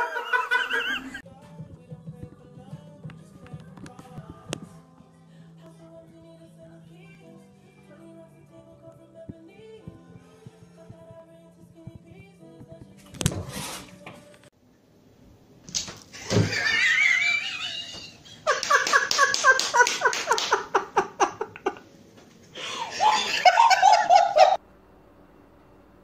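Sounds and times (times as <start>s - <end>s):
person laughing hard: 0.0s - 1.2s, 16.2s - 21.8s, 22.6s - 24.6s.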